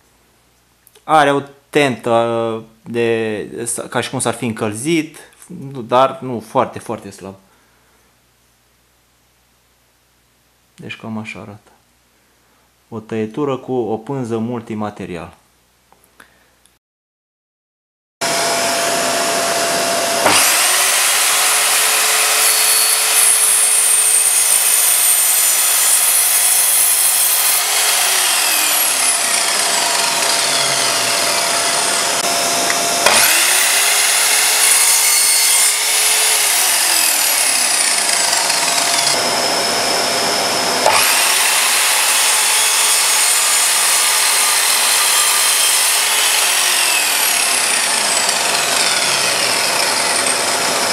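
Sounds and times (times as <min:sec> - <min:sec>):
mitre saw motor whining: 0:18.2 - 0:50.9
saw blade cutting pipe and wood: 0:18.2 - 0:50.9
saw blade spinning down: 0:18.2 - 0:50.9.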